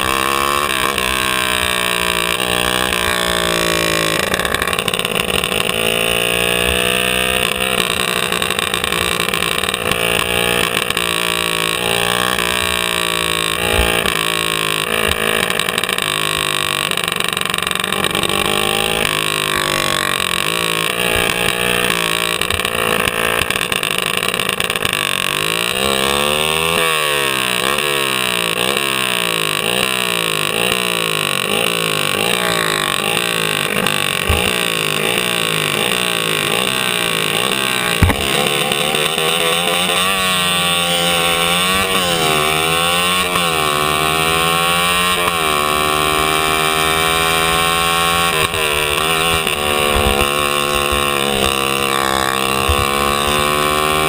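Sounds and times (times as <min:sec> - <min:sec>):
racing kart engine revving: 0:00.0 - 0:54.0.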